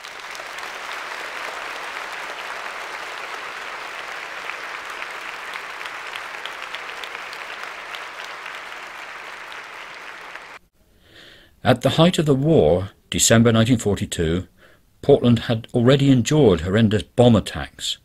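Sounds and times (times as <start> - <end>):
crowd applauding: 0.0 - 10.6.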